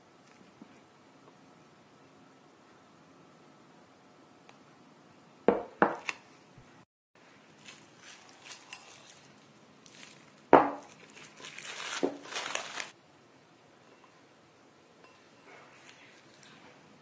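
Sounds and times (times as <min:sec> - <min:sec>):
cling film crinkling: 0:07.5 - 0:13.0.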